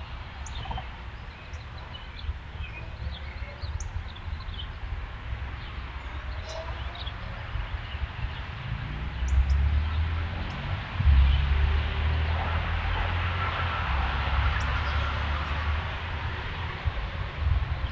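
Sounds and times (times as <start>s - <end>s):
songbirds chirping: 0.0s - 17.9s
steady low rumble: 6.9s - 17.9s.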